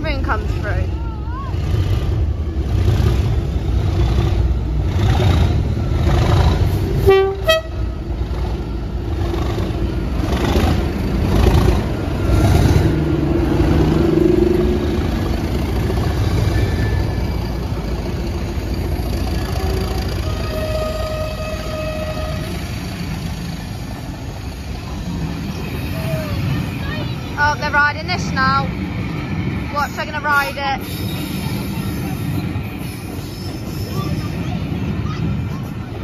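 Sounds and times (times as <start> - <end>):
diesel locomotive engine throbbing: 0.0 - 36.0
two-note train horn toot: 7.0 - 7.9, 20.2 - 22.6.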